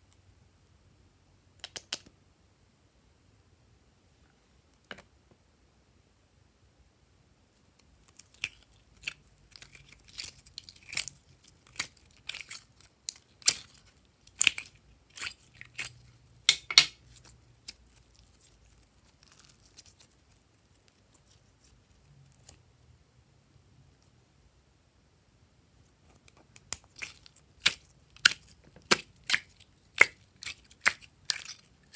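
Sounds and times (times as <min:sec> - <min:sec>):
slime popping and crackling: 0:08.0 - 0:21.7, 0:26.2 - 0:31.9.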